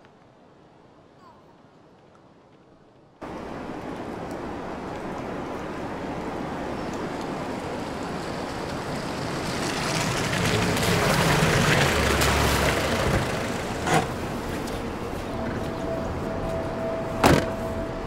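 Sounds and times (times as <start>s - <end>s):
vehicle approaching: 7.3s - 18.0s
tyre splashing in puddle: 7.8s - 14.6s.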